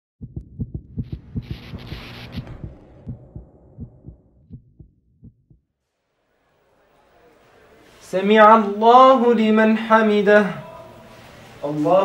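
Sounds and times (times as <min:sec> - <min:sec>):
deep thumps: 0:00.2 - 0:05.7.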